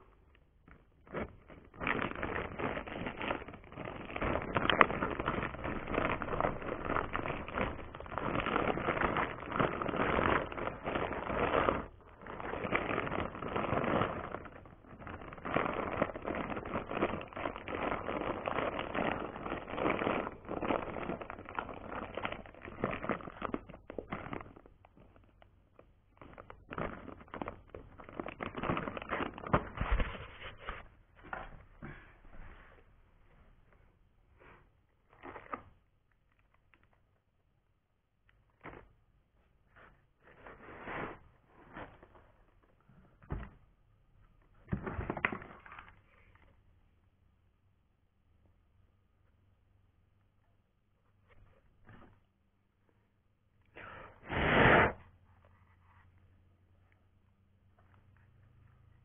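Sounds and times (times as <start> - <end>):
plastic bag crinkling: 0.7 - 30.9.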